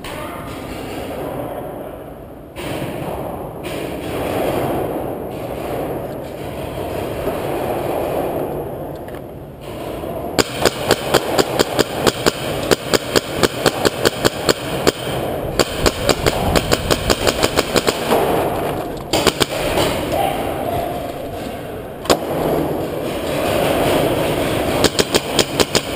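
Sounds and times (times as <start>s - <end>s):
steady rushing background noise: 0.9s - 25.9s
paintball markers firing: 10.4s - 20.1s, 23.6s - 25.9s.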